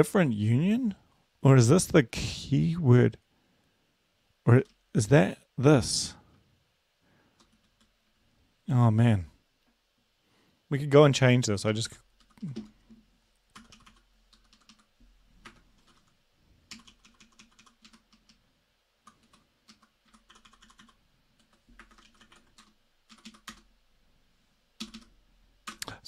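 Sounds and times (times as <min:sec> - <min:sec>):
faint keyboard typing: 0:04.5 - 0:04.9, 0:07.2 - 0:08.1, 0:11.9 - 0:23.8, 0:24.8 - 0:26.0.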